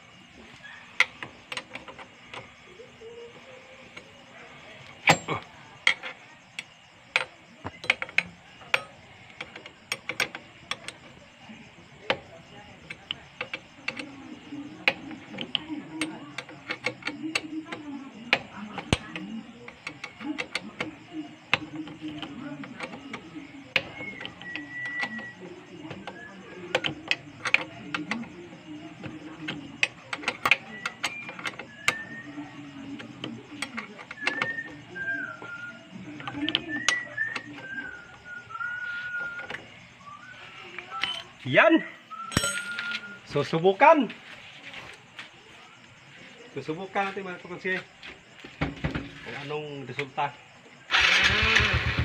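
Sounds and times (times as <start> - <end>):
ratchet wrench clicking: 12.1 - 32.3.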